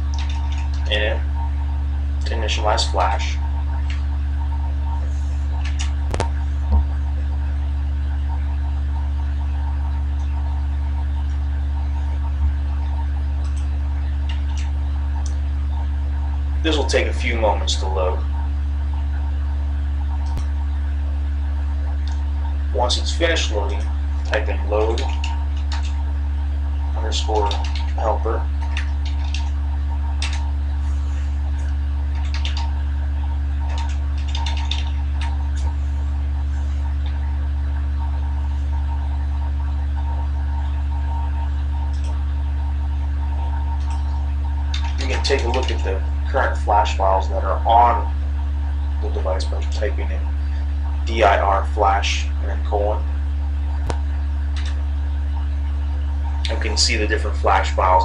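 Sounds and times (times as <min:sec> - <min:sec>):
soft low thumps: 0:00.0 - 0:16.7
low electrical hum: 0:00.0 - 0:58.0
typing on a keyboard: 0:00.1 - 0:00.7, 0:25.0 - 0:25.9, 0:27.4 - 0:27.9, 0:28.6 - 0:29.5, 0:32.1 - 0:32.7, 0:33.7 - 0:34.9
sharp click: 0:05.5 - 0:06.9.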